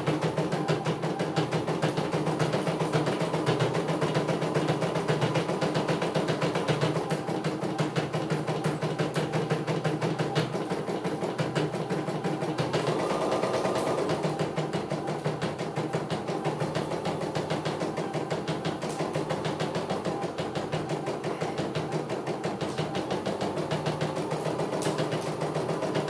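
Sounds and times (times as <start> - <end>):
embroidery machine needle stitching: 12.6 - 15.4.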